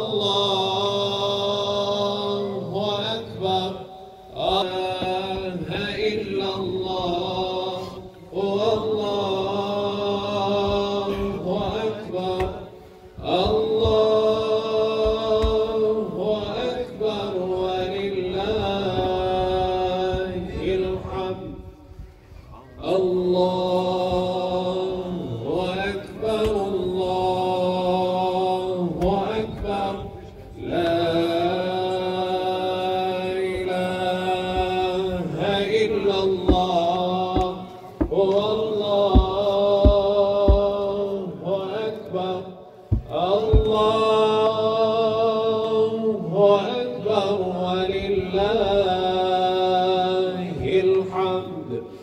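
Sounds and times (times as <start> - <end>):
men chanting in unison: 0.0 - 22.0, 22.6 - 52.0
low thuds: 36.3 - 41.0, 42.8 - 44.1.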